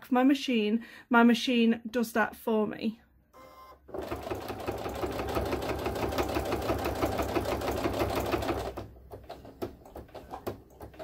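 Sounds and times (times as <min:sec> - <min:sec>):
sewing machine stitching: 0:03.9 - 0:11.0.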